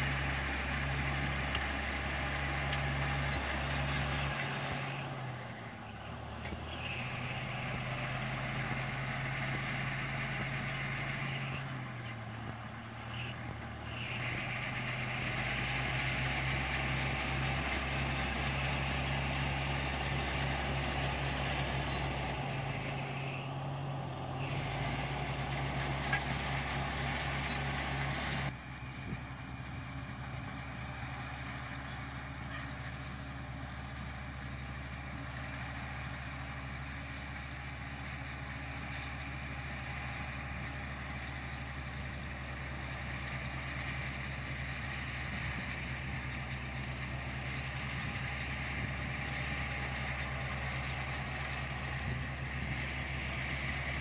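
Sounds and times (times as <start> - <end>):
bulldozer diesel engine running: 0.0 - 54.0.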